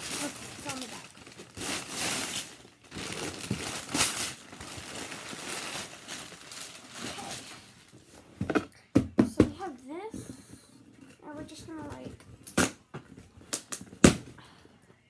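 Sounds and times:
paper crinkling: 0:00.0 - 0:08.0.

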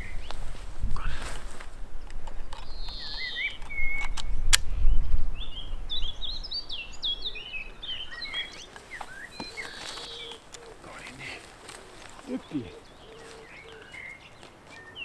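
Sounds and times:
sharp clicks: 0:02.0 - 0:04.7
songbird twittering: 0:02.0 - 0:15.0.

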